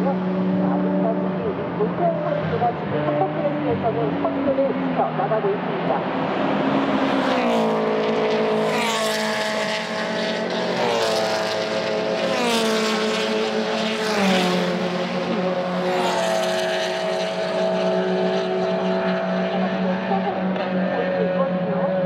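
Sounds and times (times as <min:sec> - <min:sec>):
race cars passing: 0:00.0 - 0:22.0.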